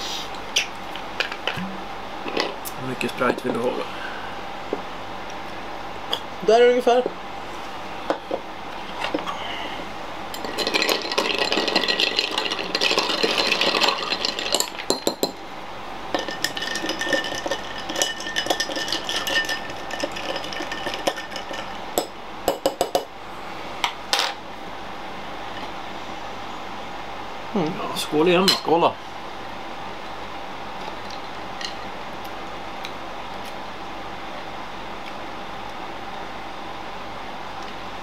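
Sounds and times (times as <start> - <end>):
drink pouring and fizzing: 10.4 - 14.9
glasses and bottle clinking: 10.4 - 15.4, 16.1 - 23.1.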